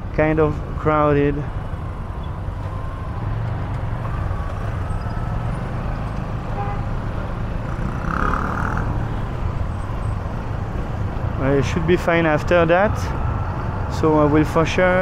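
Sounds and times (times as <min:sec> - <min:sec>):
motorcycle engine and road rumble: 0:00.0 - 0:15.0
traffic: 0:00.0 - 0:15.0
high-pitched horn blare: 0:06.5 - 0:07.0.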